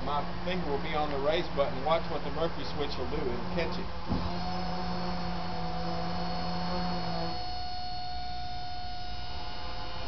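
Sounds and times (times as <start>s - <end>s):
lift mechanism humming: 3.0s - 10.0s.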